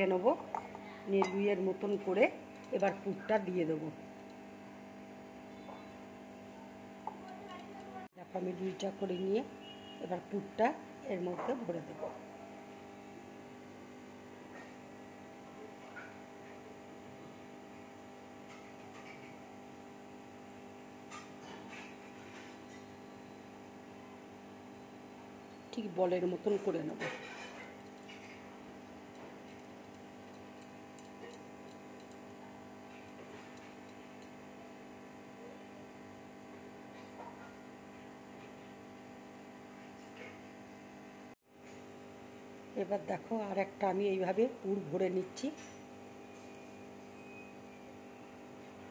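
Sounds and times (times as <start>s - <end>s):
electrical hum: 0.0s - 16.4s
low electrical hum: 0.0s - 48.9s.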